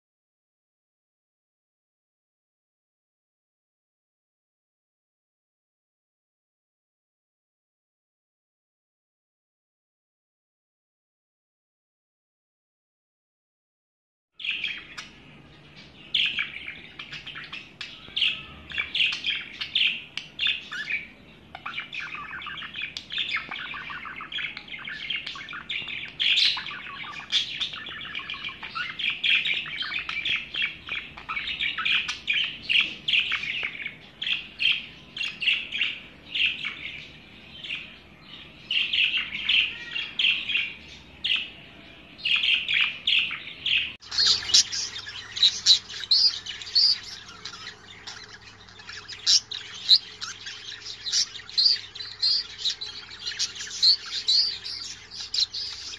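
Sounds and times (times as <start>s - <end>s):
budgerigars chattering: 16.1s - 34.4s, 42.4s - 55.9s.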